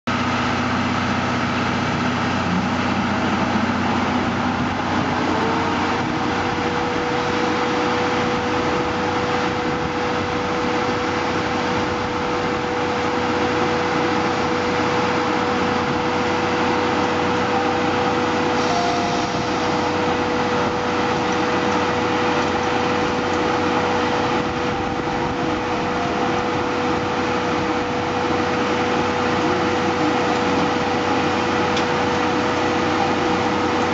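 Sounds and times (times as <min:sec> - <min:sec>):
locomotive machinery noise: 0:00.1 - 0:33.9
steady hum: 0:00.1 - 0:33.9
steam hissing: 0:17.6 - 0:22.3.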